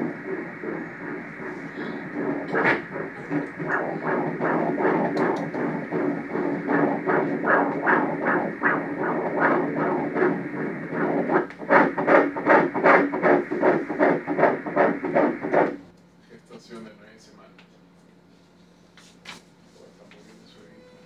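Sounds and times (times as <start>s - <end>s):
doppler heartbeat pulsing hiss: 0.0s - 15.9s.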